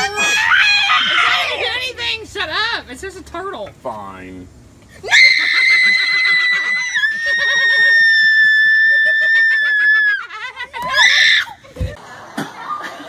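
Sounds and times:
woman screaming: 0:00.0 - 0:01.8, 0:05.0 - 0:11.6.

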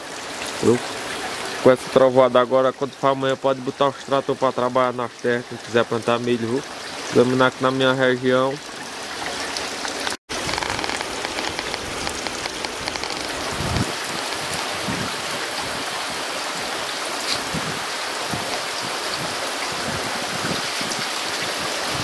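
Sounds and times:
heavy rain falling: 0:08.5 - 0:22.0.

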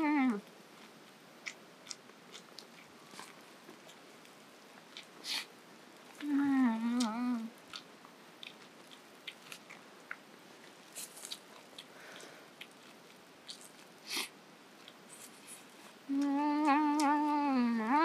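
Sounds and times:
girl humming mmm: 0:00.0 - 0:00.4, 0:06.2 - 0:07.6, 0:16.1 - 0:18.0
person chewing corn: 0:00.7 - 0:17.4.

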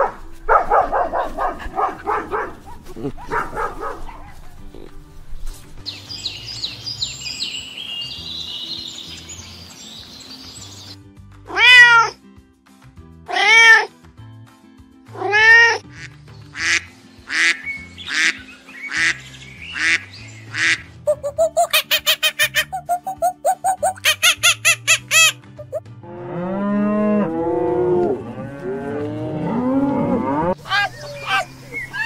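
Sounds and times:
soft background music: 0:00.0 - 0:32.0
cat meowing: 0:11.5 - 0:12.2, 0:13.3 - 0:13.9.

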